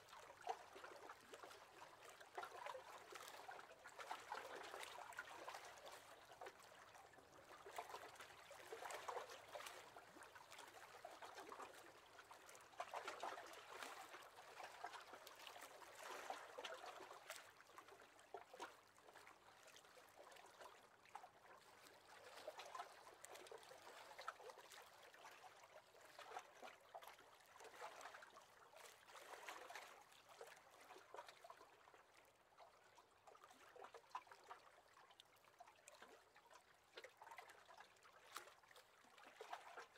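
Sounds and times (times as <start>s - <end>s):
small waves lapping against boat hull: 0.0s - 39.9s.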